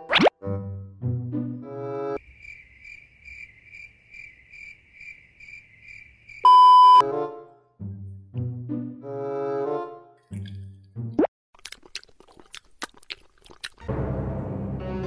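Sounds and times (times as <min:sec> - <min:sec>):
playful brass-like music: 0:00.0 - 0:02.2, 0:07.0 - 0:11.3, 0:13.8 - 0:15.0
cricket chirping sound effect: 0:02.2 - 0:06.6
loud beep: 0:06.5 - 0:07.0.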